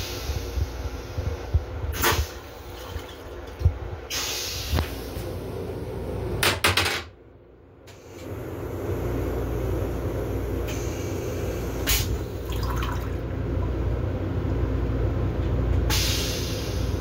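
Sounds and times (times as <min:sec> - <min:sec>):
toilet flushing water rush: 0:02.0 - 0:03.7, 0:08.3 - 0:13.9
low motor rumble: 0:07.4 - 0:15.9.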